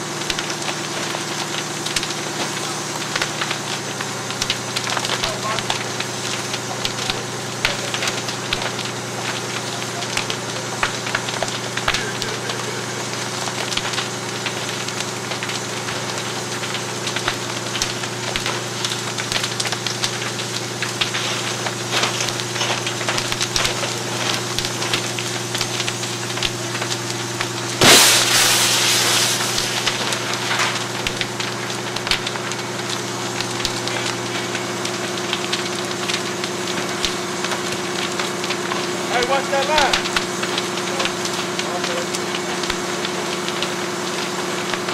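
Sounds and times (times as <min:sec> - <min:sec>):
fire crackling and popping: 0:00.0 - 0:44.9
engine humming: 0:20.8 - 0:44.9
loud rushing burst: 0:27.8 - 0:30.3.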